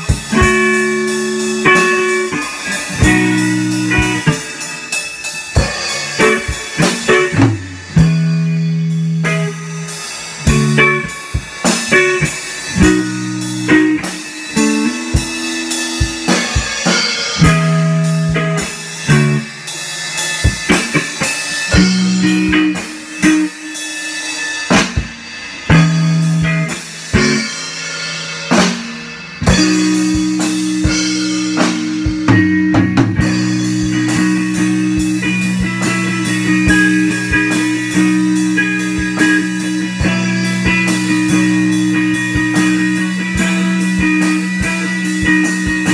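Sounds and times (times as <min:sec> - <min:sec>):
electric guitar low notes: 0:00.0 - 0:19.7, 0:20.5 - 0:23.8, 0:28.5 - 0:45.9
drum kit beat: 0:00.0 - 0:45.9.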